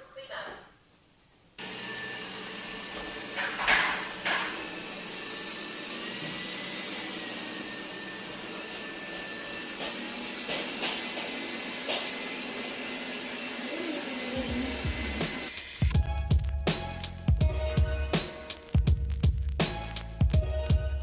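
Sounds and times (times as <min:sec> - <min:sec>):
robot vacuum running on carpet: 0:01.6 - 0:15.5.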